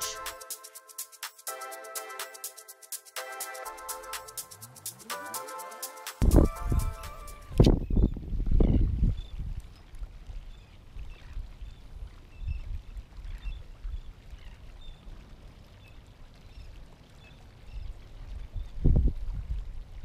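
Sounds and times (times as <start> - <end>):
wind rumbling on microphone: 6.2 - 15.3, 17.5 - 20.0.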